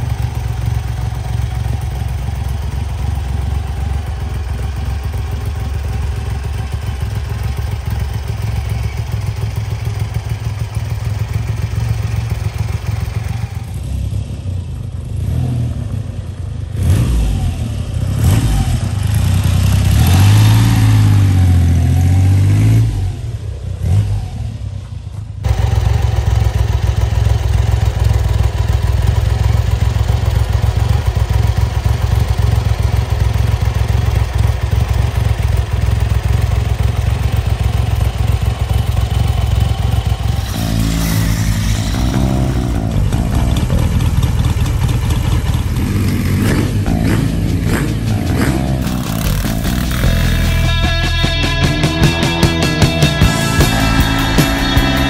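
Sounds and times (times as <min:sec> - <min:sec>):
motorcycle engine idling: 0:00.0 - 0:16.8, 0:17.4 - 0:21.8, 0:24.6 - 0:55.0
motorcycle engine revving: 0:00.0 - 0:55.0.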